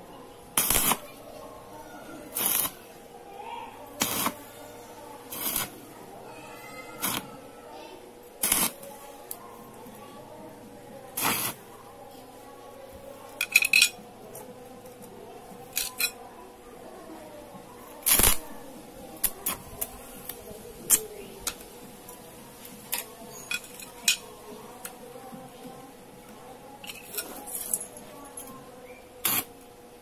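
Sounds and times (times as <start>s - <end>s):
welding arc crackling: 0.6s - 1.2s, 2.3s - 2.9s, 4.0s - 4.5s, 5.2s - 5.9s, 7.0s - 7.4s, 8.4s - 8.9s, 11.1s - 11.6s, 18.0s - 18.6s, 19.2s - 21.0s, 29.2s - 29.6s.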